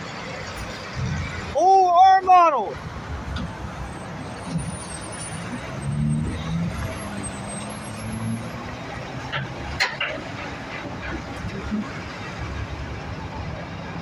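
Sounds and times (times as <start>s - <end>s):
road traffic noise: 0.0s - 14.0s
dump truck diesel engine passing: 2.8s - 14.0s.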